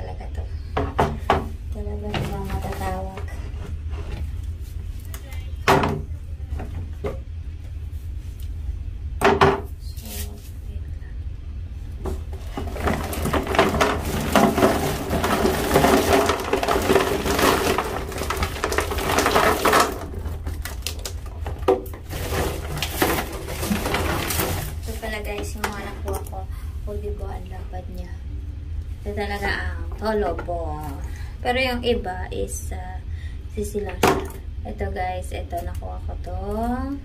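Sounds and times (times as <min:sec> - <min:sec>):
hard objects rattling in container: 0:12.2 - 0:26.4.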